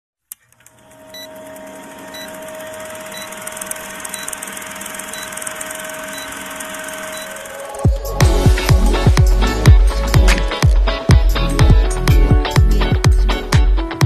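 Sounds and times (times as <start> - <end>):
film projector clatter and crackle: 0.3 - 8.0
steady hum: 0.6 - 10.5.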